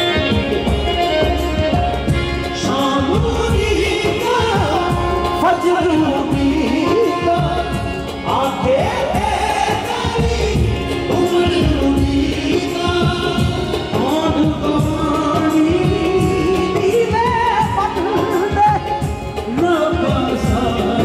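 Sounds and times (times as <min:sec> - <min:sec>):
hand-drum beats: 0:00.0 - 0:21.0
harmonium tones: 0:00.0 - 0:21.0
lead singer's ornamented vocals: 0:00.0 - 0:21.0.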